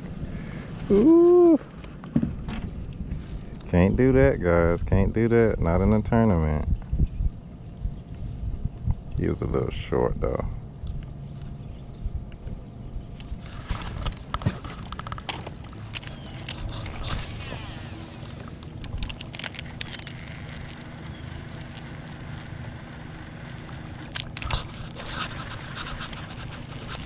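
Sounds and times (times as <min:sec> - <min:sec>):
low hum: 0:00.0 - 0:27.0
fishing reel spool whirring: 0:13.2 - 0:27.0
reel clicks and scrapes: 0:13.2 - 0:27.0.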